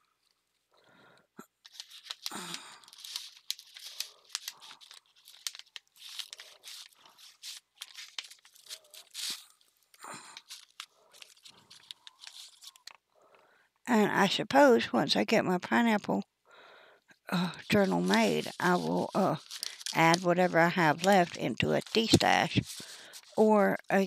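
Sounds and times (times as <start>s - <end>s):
plastic packets crinkling: 1.4s - 13.1s, 17.3s - 24.0s.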